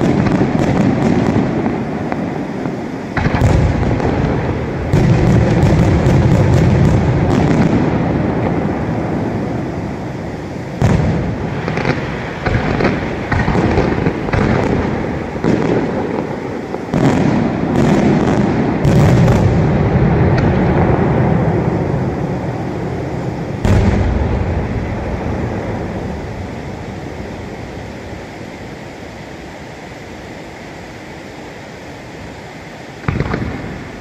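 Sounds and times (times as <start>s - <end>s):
firework shells bursting: 0.0s - 22.1s, 33.0s - 34.0s
rolling rumble of detonations: 0.0s - 29.3s, 33.0s - 34.0s.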